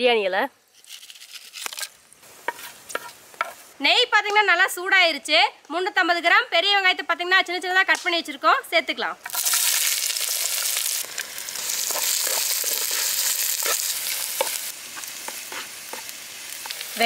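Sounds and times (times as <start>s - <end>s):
onions sizzling in hot fat: 0.6s - 4.6s, 9.2s - 17.0s
wooden spatula stirring and tapping: 2.4s - 3.6s, 11.8s - 16.8s.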